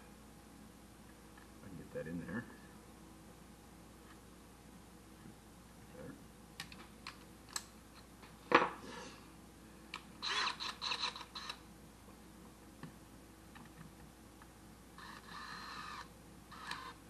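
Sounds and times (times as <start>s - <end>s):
cordless drill stuttering whirs: 10.2s - 11.6s, 15.0s - 17.0s.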